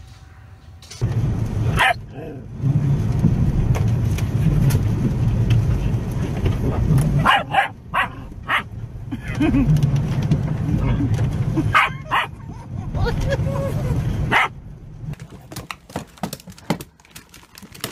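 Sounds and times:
car low rumble: 0.8s - 17.9s
small dog barking: 1.8s - 2.1s, 7.2s - 8.7s, 11.7s - 12.4s, 14.3s - 14.5s.

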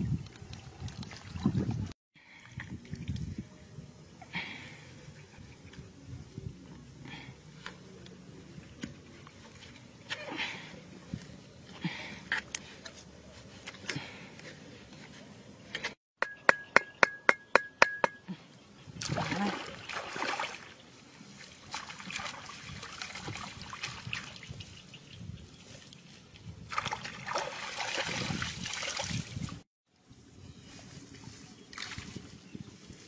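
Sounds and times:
muddy water splashing and sloshing: 0.0s - 3.2s, 19.0s - 24.7s, 25.8s - 29.6s.

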